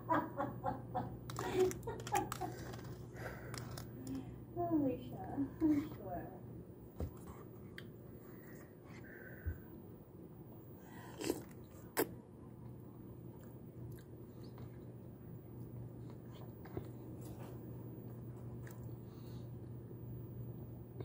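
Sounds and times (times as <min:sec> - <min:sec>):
person chewing noodles: 0:01.3 - 0:04.0, 0:10.8 - 0:19.4.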